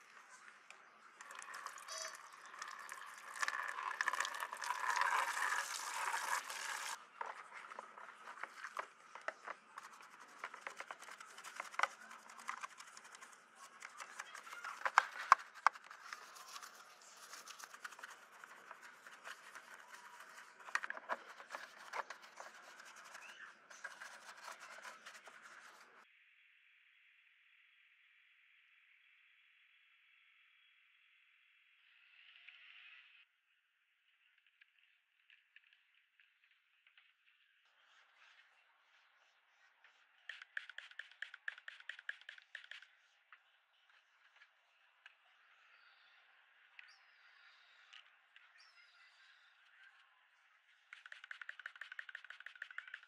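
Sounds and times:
water swished in plastic basin: 0:01.2 - 0:07.7
brush scrubbing plastic: 0:01.3 - 0:07.0, 0:07.6 - 0:26.0.

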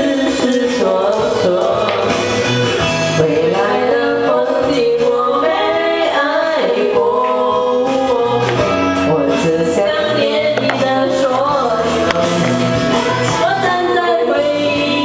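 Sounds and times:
karaoke backing track: 0:00.0 - 0:15.0
woman singing into microphone: 0:03.2 - 0:15.0.

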